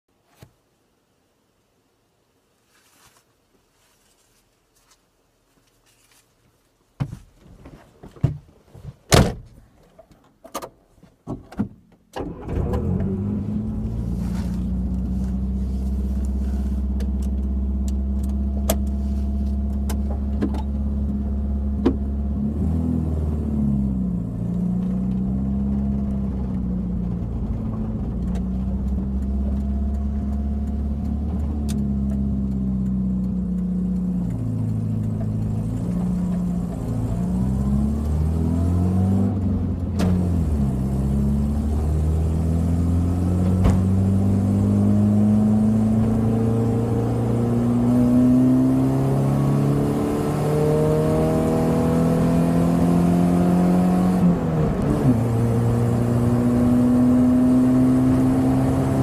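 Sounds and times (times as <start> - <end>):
knocks and clicks in car cabin: 7.0 - 9.6, 19.8 - 22.1
car engine starting and running: 11.4 - 59.0.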